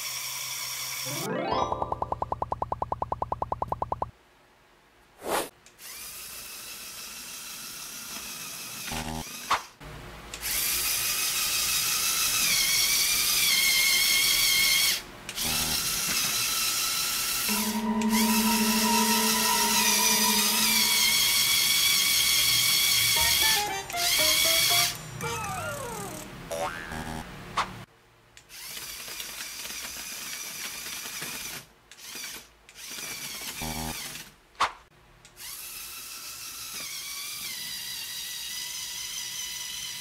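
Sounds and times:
toy electric motor whining: 0.0 - 1.1, 5.8 - 9.6, 10.4 - 18.2, 21.0 - 26.3, 28.5 - 34.3, 35.4 - 40.0.

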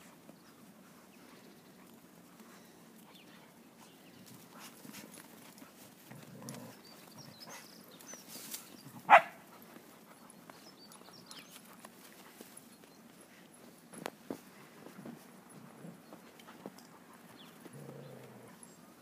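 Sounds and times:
paws scuffling in snow: 7.5 - 17.8
dog barking: 9.1 - 9.4.

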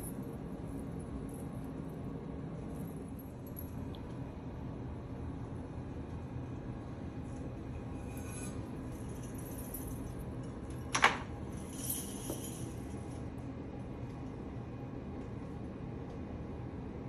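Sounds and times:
potter's wheel humming: 0.0 - 17.0
metal coins jingling: 11.5 - 13.2.

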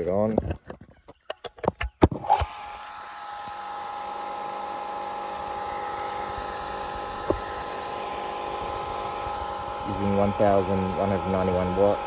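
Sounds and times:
electric water pump humming: 1.8 - 12.0.

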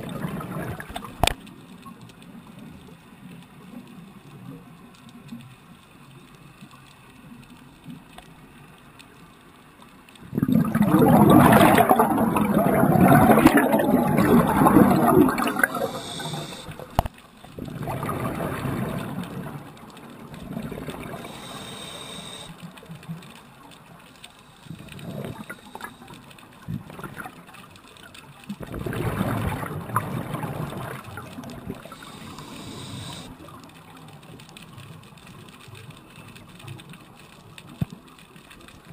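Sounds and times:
underwater regulator bubbles: 0.0 - 1.4, 10.2 - 22.6, 24.4 - 27.4, 28.5 - 33.6.

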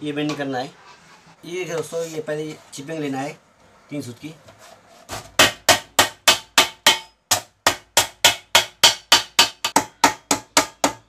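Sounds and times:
mallet striking sheet metal: 5.4 - 11.0.

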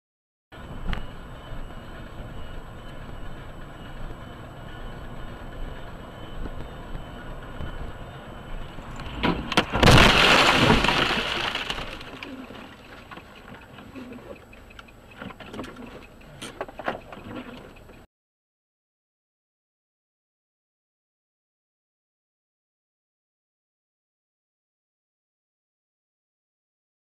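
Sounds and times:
car cabin road noise: 0.6 - 18.1.

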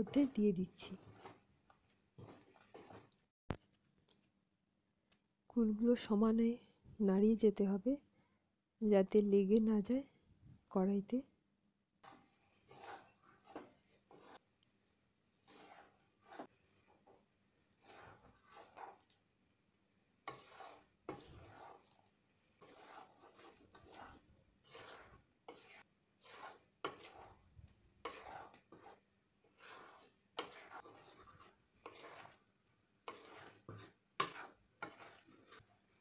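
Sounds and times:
wooden spatula scraping pan: 0.0 - 3.2, 12.0 - 14.5, 15.3 - 19.2, 20.2 - 36.0.

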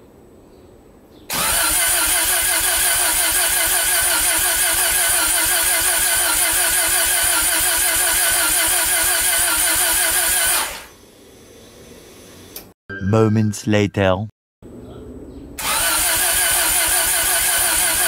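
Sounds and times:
engine starter cranking: 1.3 - 10.9, 15.6 - 18.0.

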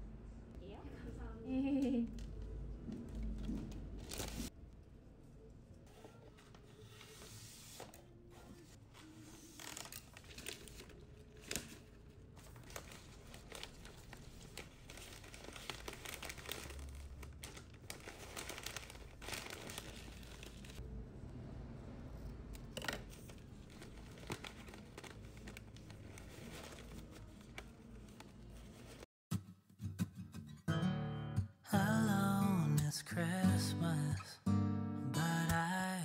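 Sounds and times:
paper and cellophane crinkling: 3.2 - 4.5, 5.9 - 20.8, 22.7 - 29.1.

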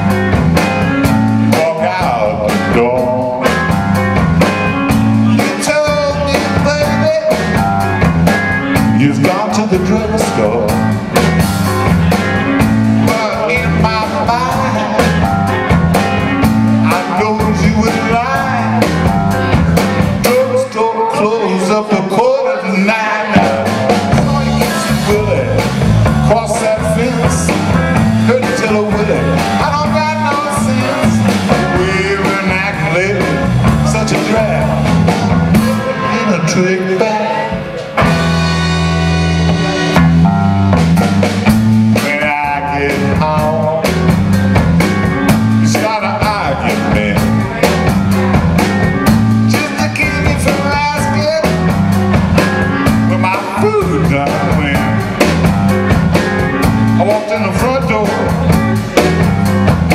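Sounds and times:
blues band playing: 0.0 - 59.9.

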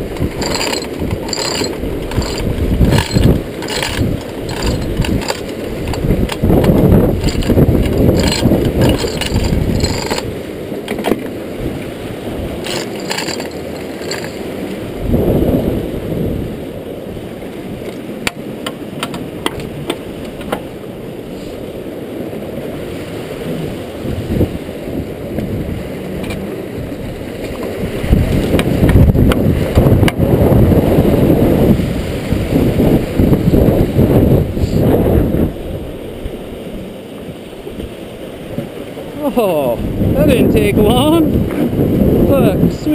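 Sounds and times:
river water rushing: 0.0 - 42.9
wind buffeting microphone: 0.0 - 42.9
chain clinking and rattling: 0.2 - 10.3, 12.6 - 14.5.

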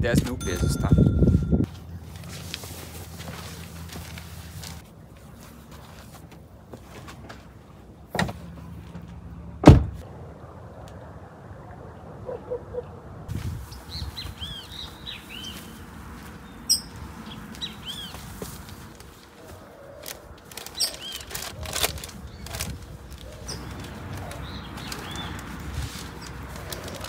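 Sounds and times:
birds chirping: 13.6 - 27.0.

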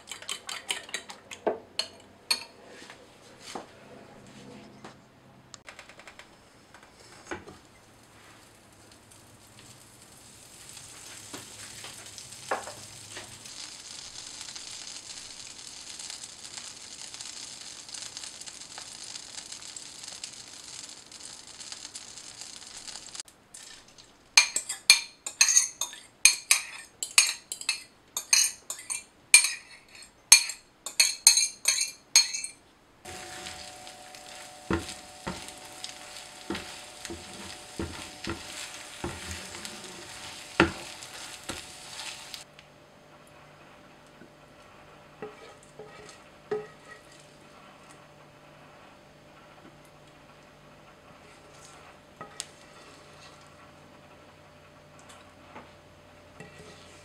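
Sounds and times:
eggs sizzling: 0.0 - 2.6, 6.4 - 57.0
butter sizzling in a pan: 7.6 - 42.5, 43.4 - 57.0
utensil clinking on glass bowl: 24.4 - 42.2
wooden spoon scraping: 24.4 - 42.5, 43.8 - 49.1, 51.1 - 54.2, 56.4 - 57.0.

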